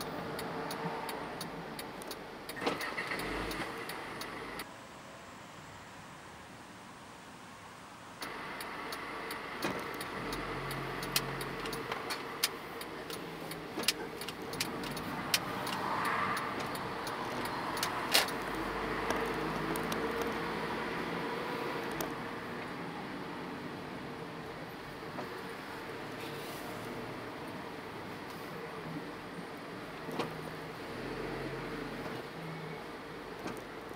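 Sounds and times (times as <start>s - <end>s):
sharp clicks: 0.0s - 4.7s, 8.2s - 20.4s
traffic noise: 0.0s - 33.9s
vehicles passing: 0.0s - 33.9s.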